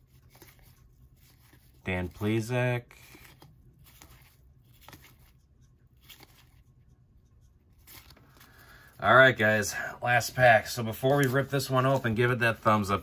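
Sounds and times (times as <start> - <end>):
cards sliding and flicking: 0.2 - 6.6, 7.8 - 8.5.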